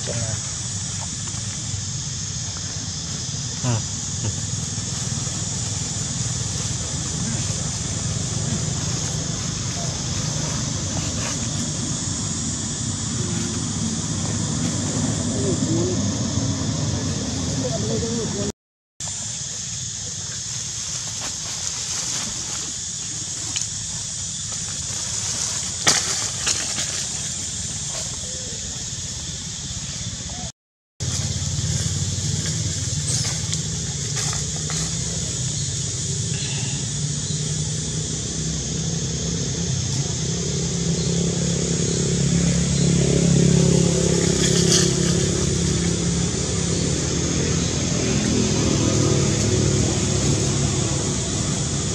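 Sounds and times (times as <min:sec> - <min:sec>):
vehicle engine running: 0:00.0 - 0:18.5, 0:19.4 - 0:51.9
high hiss: 0:00.0 - 0:51.9
dry leaves crackling: 0:00.6 - 0:14.9, 0:19.4 - 0:28.6, 0:31.0 - 0:35.7.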